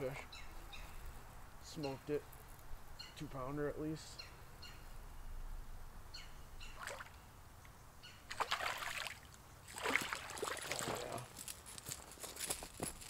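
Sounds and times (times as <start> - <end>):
fish splashing and thrashing: 8.3 - 11.2.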